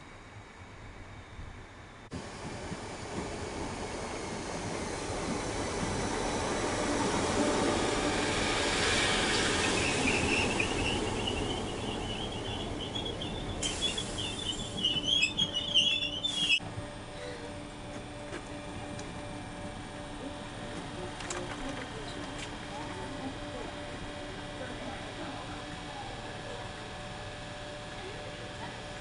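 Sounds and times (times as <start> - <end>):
train wheels rumbling on rails: 2.1 - 29.0
high wavering brake squeal: 8.1 - 16.6.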